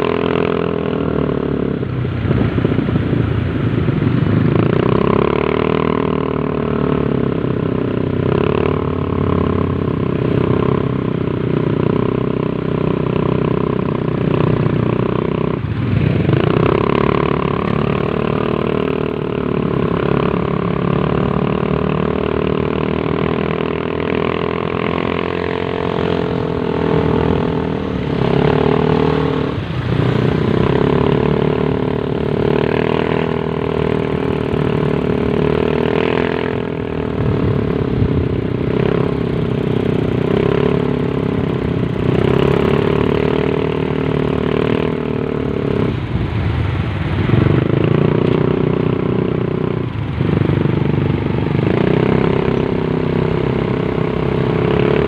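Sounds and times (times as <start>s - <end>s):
motorcycle engines running: 0.0s - 55.0s.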